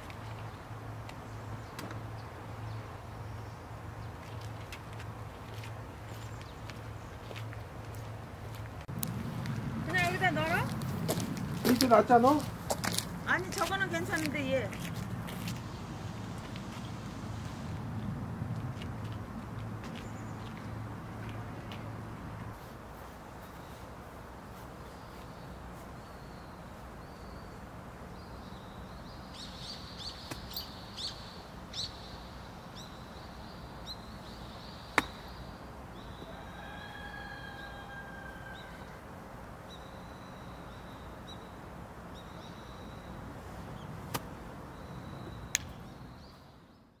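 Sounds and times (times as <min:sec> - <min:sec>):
steady background hiss: 0:00.0 - 0:18.5, 0:19.3 - 0:47.0.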